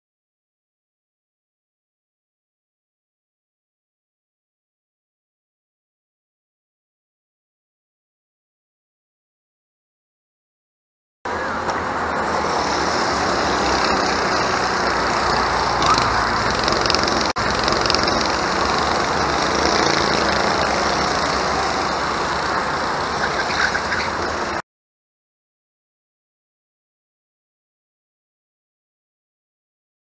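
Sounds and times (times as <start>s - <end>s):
go-kart engines racing: 11.3s - 24.6s.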